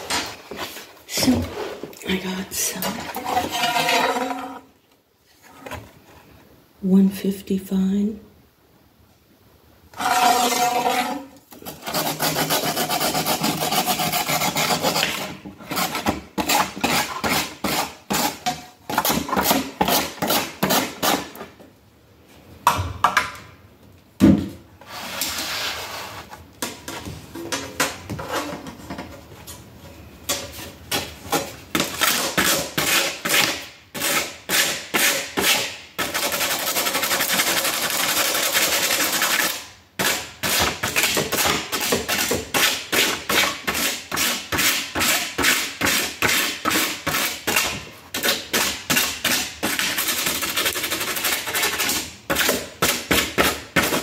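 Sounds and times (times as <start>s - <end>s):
handsaw cutting plastic: 10.0s - 21.4s, 31.8s - 54.0s.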